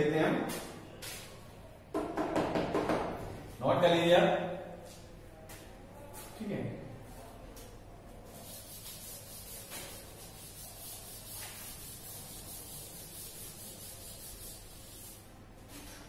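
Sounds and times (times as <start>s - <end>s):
duster rubbing on chalkboard: 8.3s - 15.3s.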